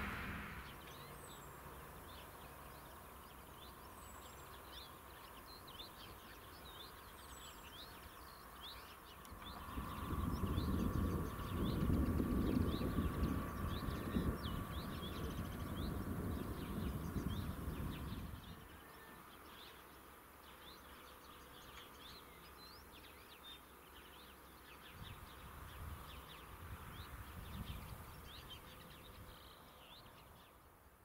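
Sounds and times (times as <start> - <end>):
low rumble: 0.0 - 1.0
songbirds chirping: 0.0 - 31.0.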